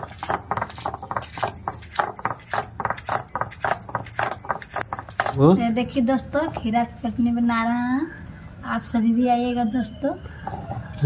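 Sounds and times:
stone roller grinding on stone slab: 0.0 - 5.6.

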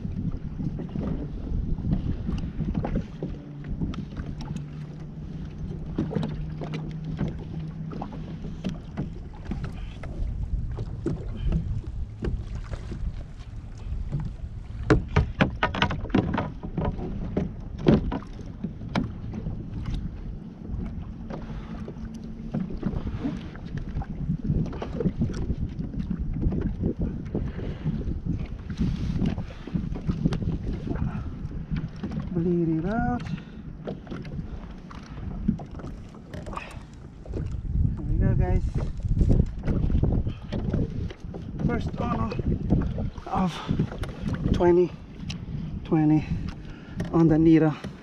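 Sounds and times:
water lapping against kayak hull: 0.0 - 48.0
wind buffeting microphone: 0.0 - 48.0
sharp knocks and thumps: 14.1 - 19.5.

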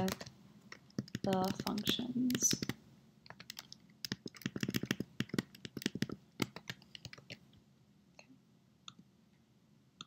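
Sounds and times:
mouse clicks: 0.0 - 7.4
typing on computer keyboard: 0.0 - 7.4.

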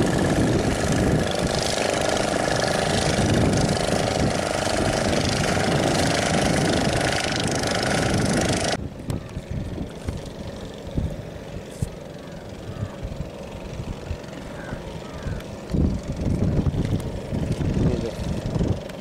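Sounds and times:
engine idling: 9.9 - 19.0.

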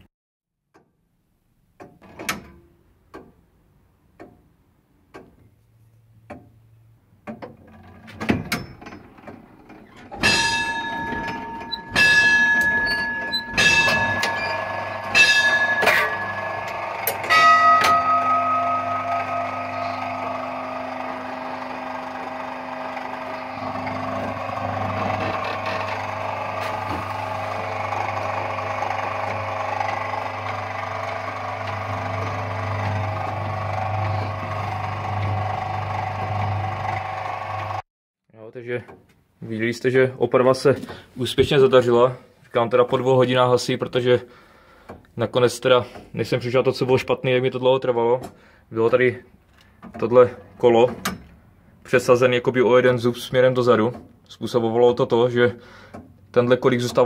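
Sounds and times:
clockwork clicks and knocks: 10.1 - 27.0
lower-pitched bell ringing: 10.2 - 24.1
clock bell striking: 10.2 - 25.0
steady low hum: 10.4 - 35.7.

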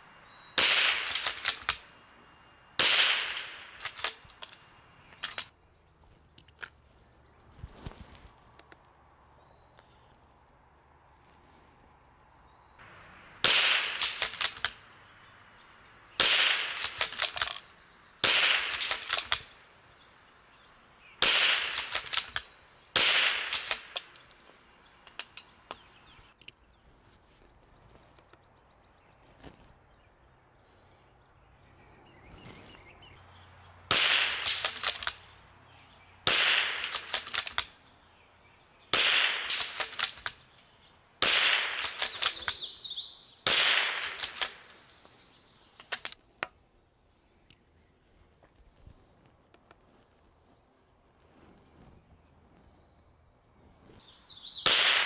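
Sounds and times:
rifle shots: 0.6 - 1.9, 2.8 - 4.5, 13.4 - 14.9, 16.1 - 19.6, 21.2 - 24.3, 33.9 - 35.3, 36.2 - 37.7, 38.9 - 40.4, 41.2 - 42.8, 43.4 - 44.8, 54.6 - 55.0.

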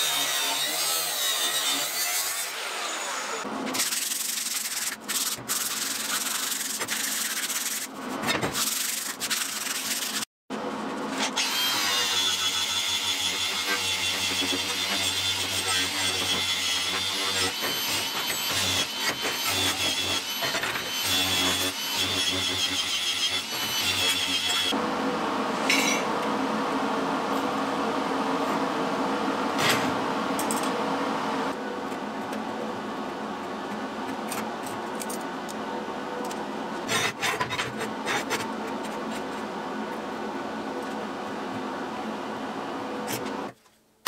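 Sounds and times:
sharp scrapes: 3.7 - 10.3
hand tools scratching steel: 3.8 - 10.3, 11.5 - 24.8, 36.8 - 39.4.

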